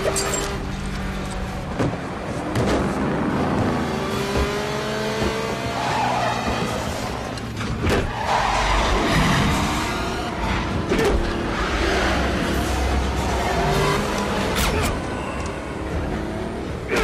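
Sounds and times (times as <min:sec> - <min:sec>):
engines running and revving: 0:00.0 - 0:17.0
tires squealing: 0:05.3 - 0:16.2.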